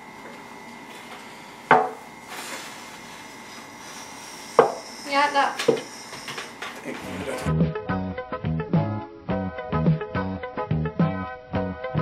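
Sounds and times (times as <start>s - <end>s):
plate knocking with ring: 4.6s - 4.8s.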